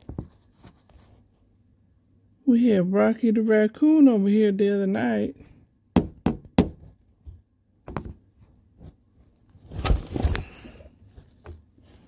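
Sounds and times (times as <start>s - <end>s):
rustling scrape: 0.0s - 1.6s, 8.4s - 12.0s.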